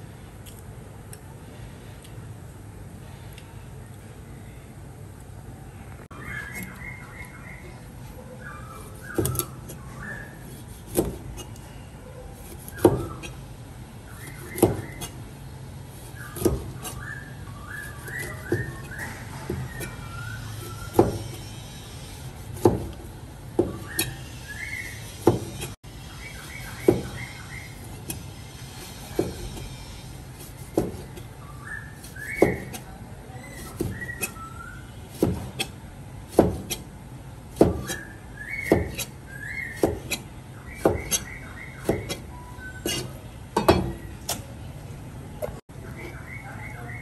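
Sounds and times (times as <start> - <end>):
bird singing whistled notes: 6.1 - 10.5, 12.7 - 13.4, 14.0 - 15.2, 16.1 - 21.6, 23.7 - 28.5, 31.4 - 35.1, 37.8 - 40.0, 40.6 - 43.2, 45.9 - 47.0.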